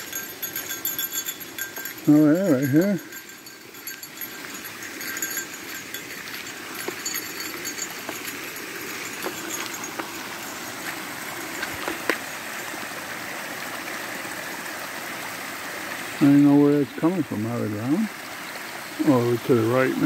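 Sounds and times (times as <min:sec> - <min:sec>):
stream water rushing: 0:00.0 - 0:20.0
footsteps on gravel: 0:03.7 - 0:12.3.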